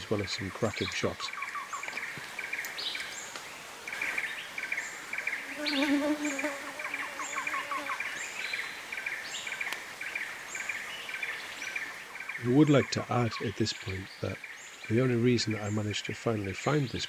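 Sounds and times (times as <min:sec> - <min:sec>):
insects buzzing in trills: 0:01.0 - 0:13.0
downslurred bird calls: 0:03.9 - 0:17.0.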